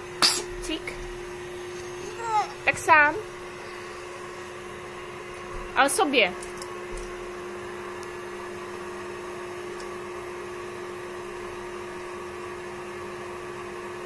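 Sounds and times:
nasal aspirator suction hum: 0.0 - 5.8.

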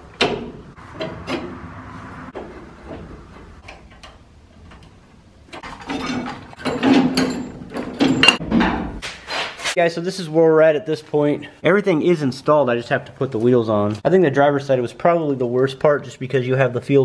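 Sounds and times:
hand tools clinking on metal: 5.6 - 8.4.

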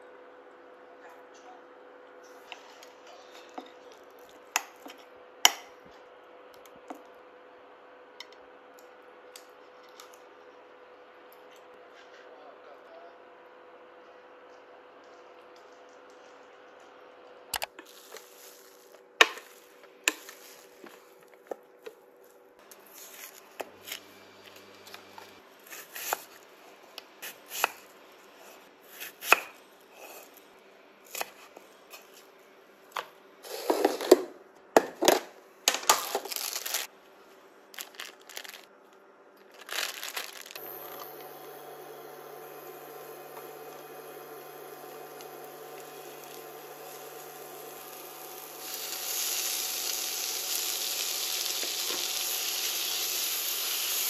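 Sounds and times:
onion frying in a pan: 42.3 - 54.0.

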